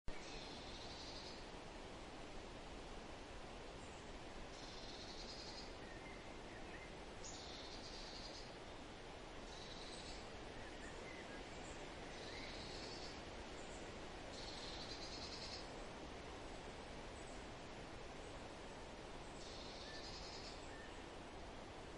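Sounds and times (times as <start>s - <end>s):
steady background hiss: 0.1s - 21.9s
faint chirps: 9.5s - 15.7s, 19.4s - 21.0s.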